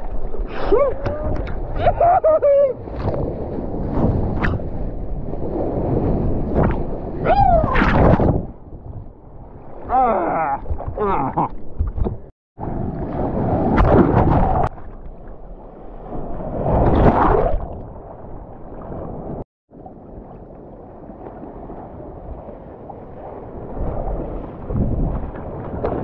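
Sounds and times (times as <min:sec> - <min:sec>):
sea water splashing: 0:00.0 - 0:26.0.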